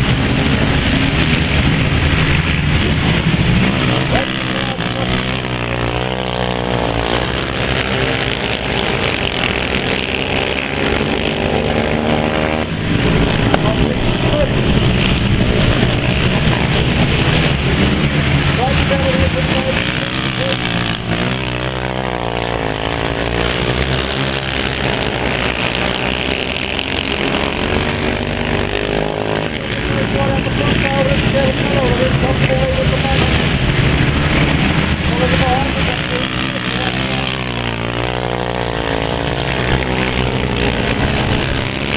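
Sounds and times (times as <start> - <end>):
quad bike engines racing: 0.0 - 41.9.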